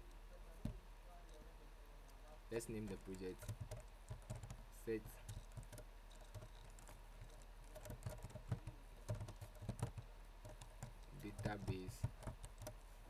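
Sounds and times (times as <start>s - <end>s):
keyboard typing: 2.7s - 12.8s.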